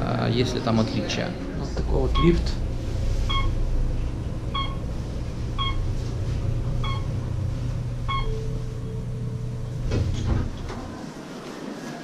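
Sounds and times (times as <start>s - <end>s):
elevator rumble: 0.0s - 11.8s
elevator stopping clunk and rattle: 1.7s - 11.0s
short electronic beep: 3.3s - 3.6s, 6.8s - 7.1s, 8.1s - 9.5s.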